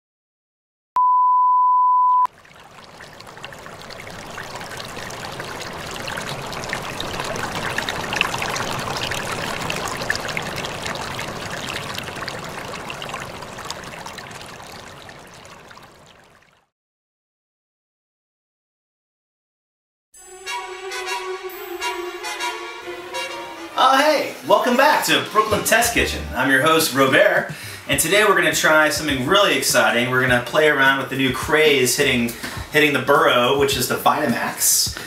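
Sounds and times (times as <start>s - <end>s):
test tone beep: 1.0s - 2.3s.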